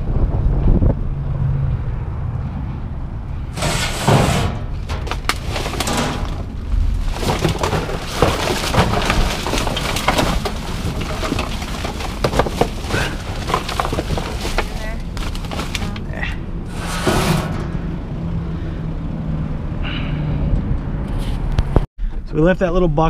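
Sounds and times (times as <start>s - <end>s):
plastic bags rustling: 3.6s - 17.0s.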